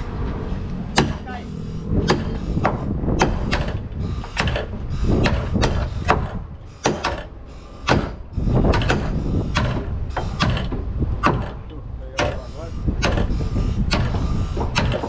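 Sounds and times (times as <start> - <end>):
hammer blows with metallic ring: 12.2 - 15.0.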